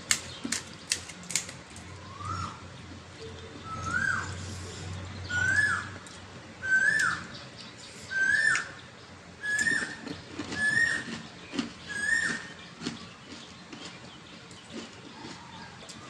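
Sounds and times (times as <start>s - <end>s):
bird whistled call: 2.0s - 2.6s, 3.6s - 4.6s, 5.3s - 6.0s, 6.6s - 8.8s, 9.4s - 11.1s, 11.8s - 12.6s.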